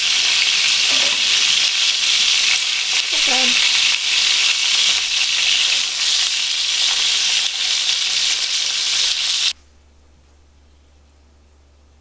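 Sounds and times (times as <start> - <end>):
food sizzling in a frying pan: 0.0 - 9.6.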